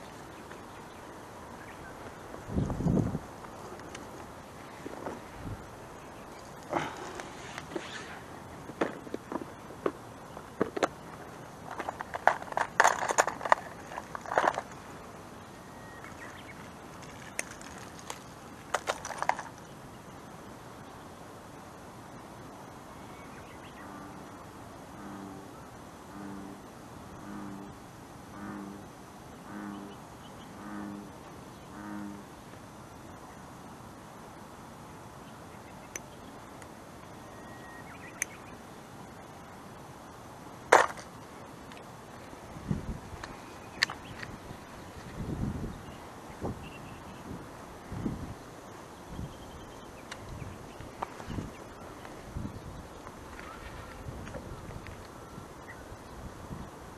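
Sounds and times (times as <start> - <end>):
outdoor background noise: 0.0 - 56.9
plastic box clicking and rattling: 11.7 - 14.7.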